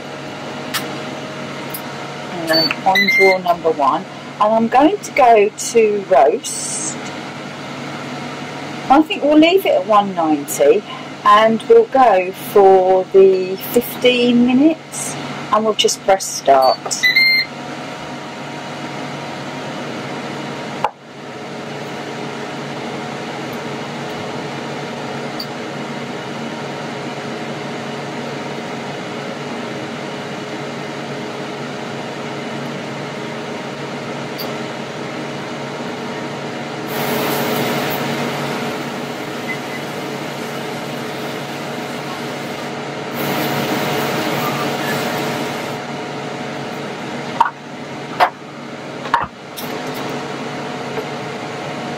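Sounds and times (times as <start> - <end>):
air fryer fan humming: 0.0 - 51.9
air fryer hissing: 36.7 - 45.9.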